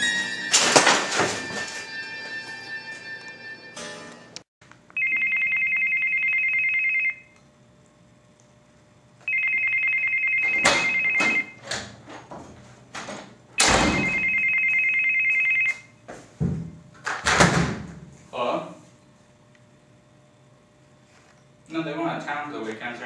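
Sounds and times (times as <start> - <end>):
telephone ringing: 1.3 - 4.3, 5.0 - 7.4, 9.2 - 11.6, 13.9 - 15.9.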